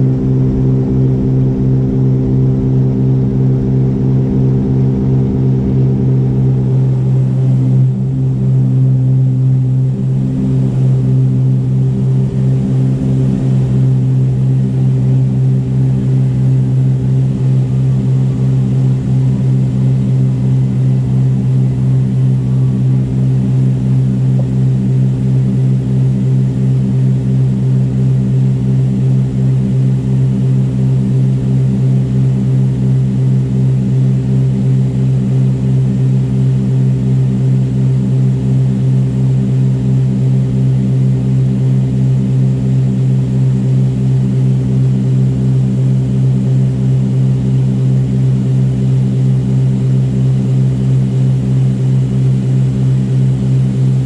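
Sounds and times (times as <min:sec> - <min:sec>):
aircraft engines droning: 0:00.0 - 0:26.8.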